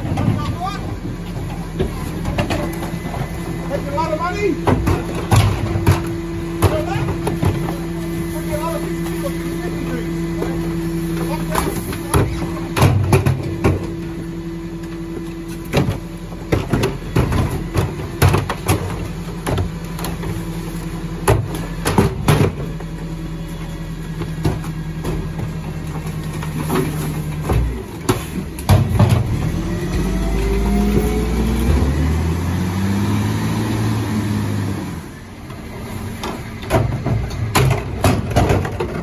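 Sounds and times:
bins clanking and banging: 0.0 - 32.1, 35.5 - 39.0
garbage truck engine: 0.0 - 39.0
engine revving: 29.0 - 35.2.

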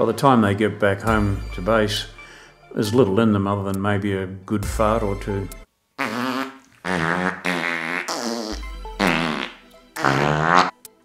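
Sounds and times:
comic fart noises: 6.0 - 10.8.

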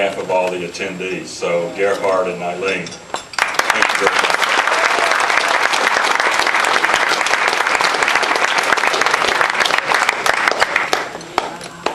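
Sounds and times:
audience clapping: 3.4 - 11.9.

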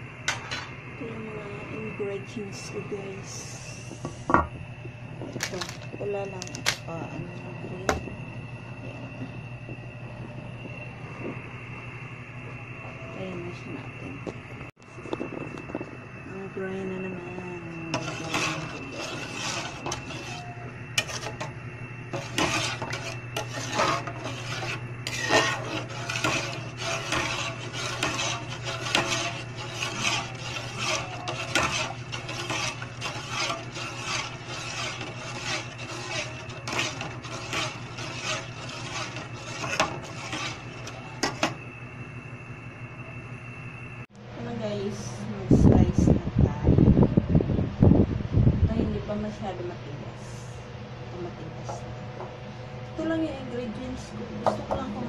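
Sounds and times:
metal ladle scraping pot: 5.4 - 6.8, 17.7 - 41.6.

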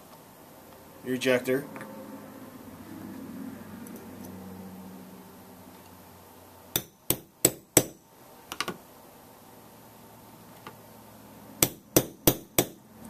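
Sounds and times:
hammer striking metal punch: 6.8 - 8.0, 11.6 - 12.8.

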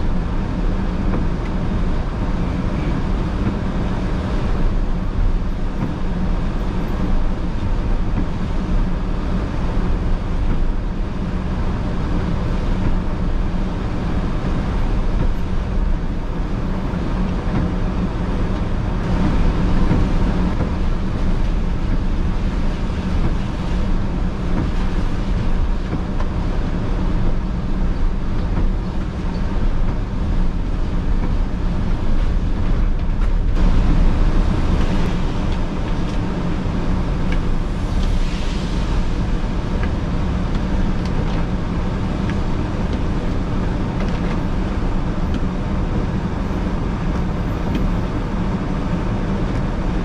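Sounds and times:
car engine low hum: 0.0 - 50.0
tyres hissing on wet pavement: 33.4 - 45.2.

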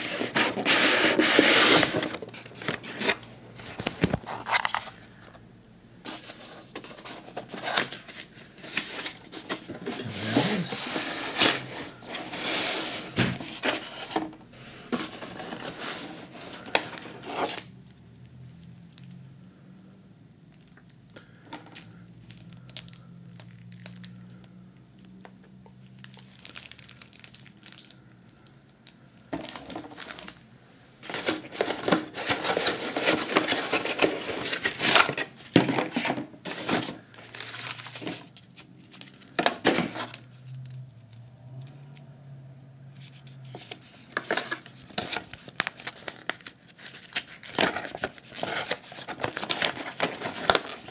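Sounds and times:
plastic wrap crinkling: 21.8 - 24.4, 25.8 - 30.4, 43.5 - 50.9.

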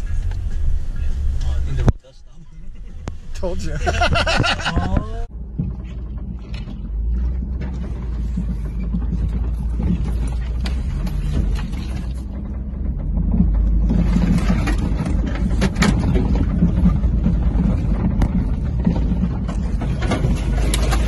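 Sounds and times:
engine and tyres rumbling: 0.0 - 21.0
knocks and rattles over bumps: 2.7 - 21.0.

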